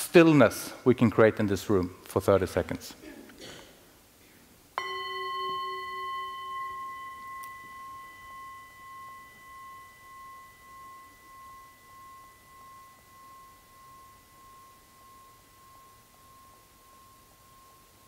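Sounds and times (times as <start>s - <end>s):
gong ringing: 4.8s - 11.6s.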